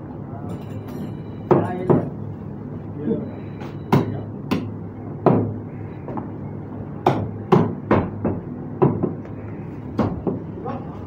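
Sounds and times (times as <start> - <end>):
meat cleavers chopping on wood: 3.9 - 6.3, 7.0 - 9.3.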